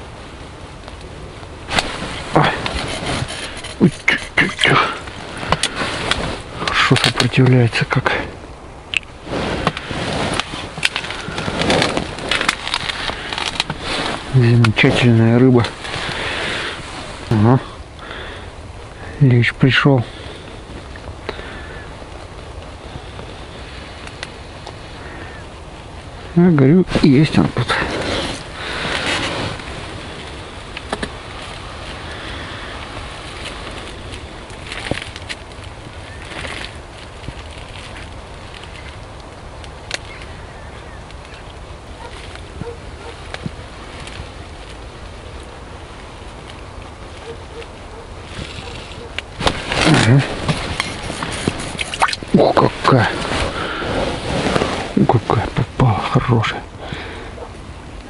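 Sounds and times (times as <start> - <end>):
wind rumble on microphone: 0.0 - 19.4, 20.0 - 55.8
rustling of hands and clothing: 1.7 - 7.5, 9.0 - 17.6, 26.9 - 40.2, 42.0 - 55.8.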